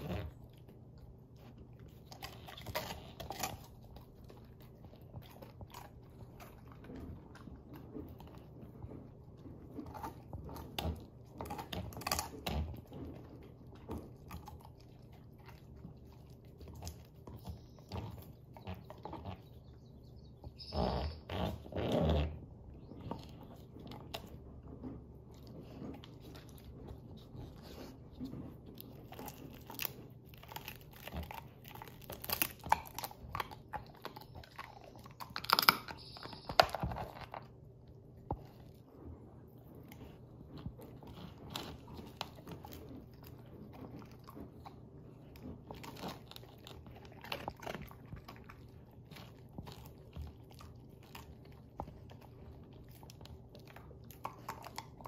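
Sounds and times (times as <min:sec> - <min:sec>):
puppy crunching a bone: 0:00.0 - 0:55.0.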